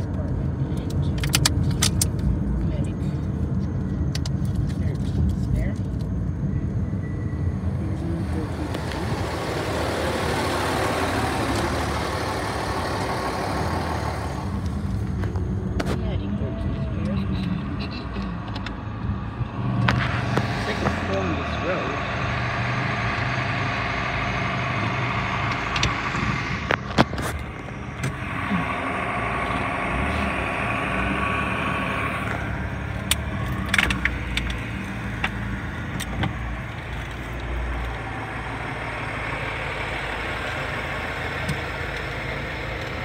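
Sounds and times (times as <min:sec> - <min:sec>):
vehicle engines running: 0:00.0 - 0:43.0
sharp clicks and knocks: 0:00.8 - 0:02.3, 0:25.5 - 0:28.2, 0:32.2 - 0:38.0.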